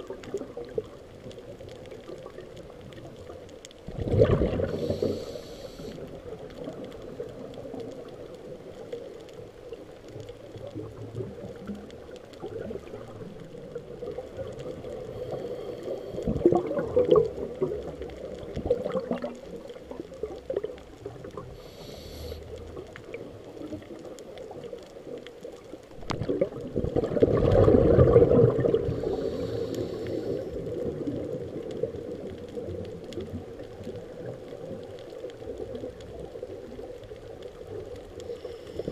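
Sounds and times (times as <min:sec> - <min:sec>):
steady underwater hum: 0:00.0 - 0:38.9
exhaled bubbles rushing: 0:02.0 - 0:05.4, 0:16.1 - 0:21.6, 0:25.9 - 0:38.0
regulator inhale hiss: 0:04.6 - 0:06.2, 0:15.0 - 0:16.4, 0:21.5 - 0:22.8, 0:28.8 - 0:30.8, 0:38.2 - 0:38.9.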